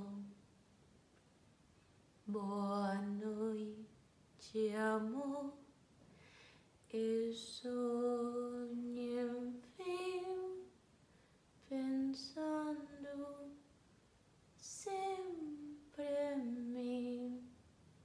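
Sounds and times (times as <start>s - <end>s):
woman singing unaccompanied: 0.0s - 0.4s, 2.2s - 5.7s, 6.9s - 10.8s, 11.6s - 13.7s, 14.6s - 17.6s.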